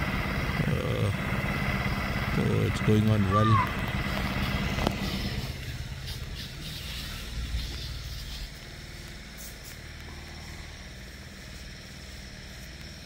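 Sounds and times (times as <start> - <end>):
small engine humming: 0.0 - 13.0.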